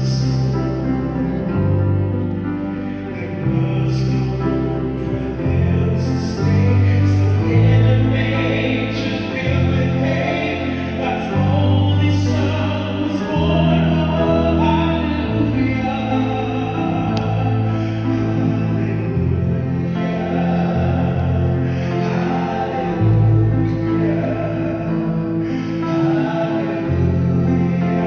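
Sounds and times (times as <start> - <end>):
piano accompaniment: 0.0 - 28.0
man singing: 2.6 - 28.0.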